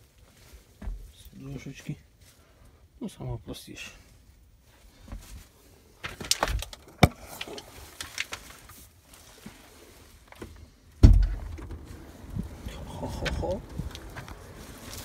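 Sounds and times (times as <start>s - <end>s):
heavy low thump: 11.0s - 11.8s.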